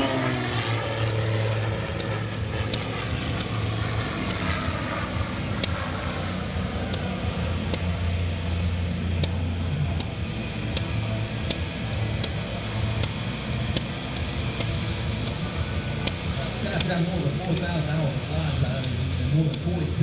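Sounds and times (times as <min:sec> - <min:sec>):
distant propeller plane engine: 0:00.0 - 0:20.0
steady low hum: 0:00.0 - 0:20.0.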